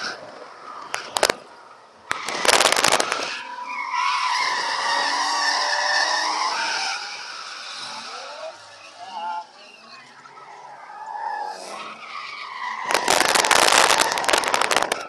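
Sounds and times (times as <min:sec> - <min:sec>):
loud rapid crackling knocks: 0:02.1 - 0:03.3, 0:12.9 - 0:15.0.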